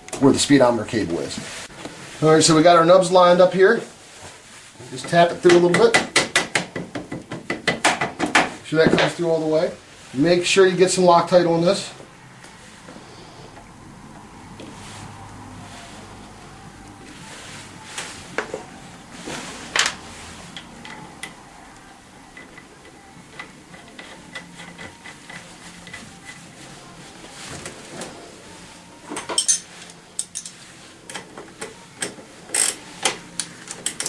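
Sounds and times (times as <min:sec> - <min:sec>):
wrench clinking on metal: 0:29.2 - 0:30.6.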